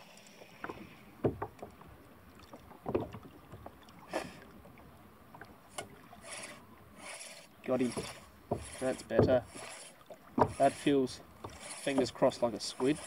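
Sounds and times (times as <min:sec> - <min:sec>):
faint water: 0:00.0 - 0:13.0
wind: 0:00.0 - 0:13.0
fishing gear knocking on kayak: 0:01.2 - 0:01.7, 0:08.4 - 0:09.4, 0:10.4 - 0:10.6.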